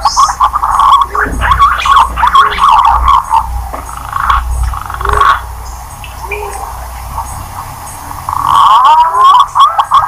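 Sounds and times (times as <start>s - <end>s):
low background rumble: 0.0s - 10.0s.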